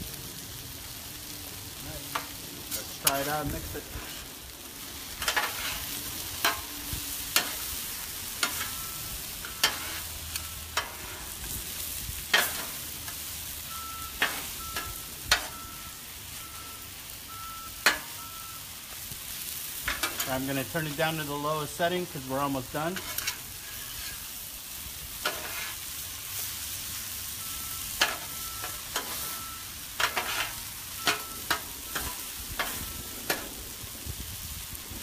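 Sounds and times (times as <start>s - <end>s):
food sizzling on a griddle: 0.0s - 35.0s
metal spatulas scraping: 3.9s - 4.3s, 5.2s - 6.7s, 7.3s - 8.8s, 9.4s - 11.4s, 12.3s - 13.2s, 14.2s - 15.6s, 19.9s - 21.0s, 22.8s - 24.3s, 25.2s - 25.8s, 28.0s - 29.4s, 30.0s - 33.5s
spatulas clacking on steel plate: 12.3s - 12.7s, 30.0s - 33.5s.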